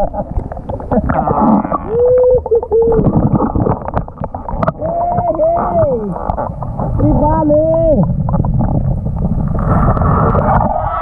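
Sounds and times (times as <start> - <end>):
small underwater clicks: 0.0 - 7.0
muffled vocal call underwater: 0.0 - 8.2
water rumbling and sloshing: 0.0 - 11.0.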